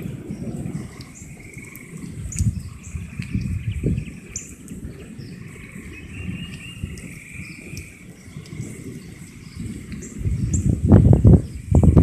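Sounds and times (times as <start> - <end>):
birds chirping: 0.0 - 12.0
wind buffeting microphone: 0.0 - 12.0.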